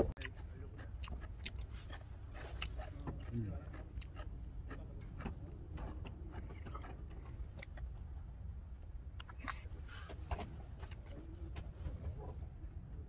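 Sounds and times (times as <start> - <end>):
low steady rumble: 0.0 - 13.0
person chewing: 0.2 - 8.1, 9.1 - 11.2.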